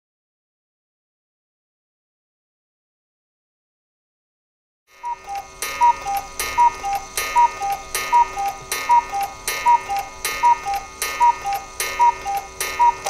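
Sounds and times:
clock mechanism clack: 4.9 - 13.0
cuckoo clock calling: 4.9 - 13.0.

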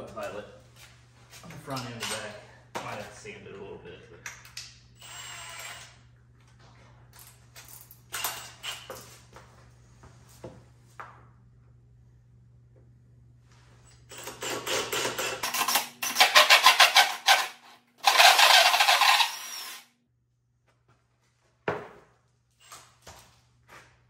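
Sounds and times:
drill cutting into plywood: 5.0 - 5.9, 14.1 - 19.9.

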